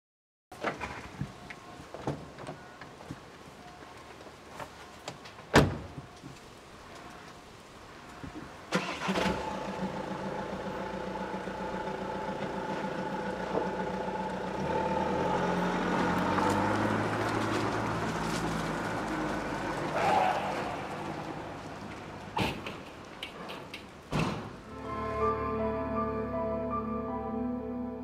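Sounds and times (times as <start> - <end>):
van door slamming: 5.5 - 5.9, 24.1 - 24.6
van engine running: 9.0 - 19.9.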